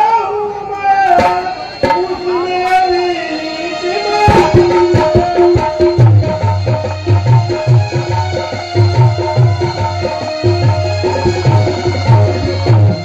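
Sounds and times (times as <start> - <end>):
hand-drum strokes: 1.2 - 2.4, 4.2 - 13.0.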